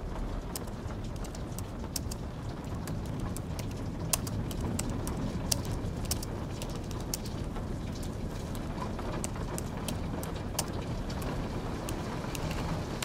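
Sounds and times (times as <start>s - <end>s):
rain hissing: 0.0s - 13.0s
keyboard key clicks: 3.0s - 7.3s.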